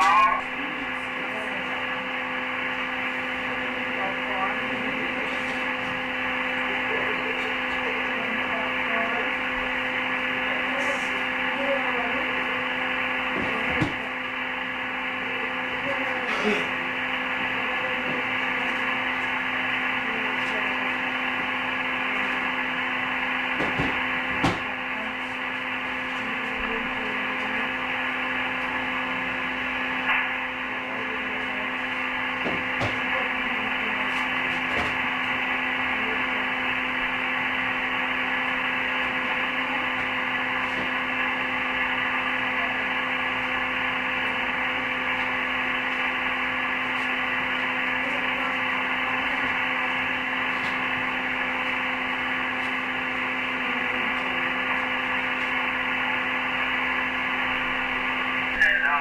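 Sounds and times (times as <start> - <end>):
steady hum: 0.0 - 59.0
radio static hiss: 15.2 - 59.0.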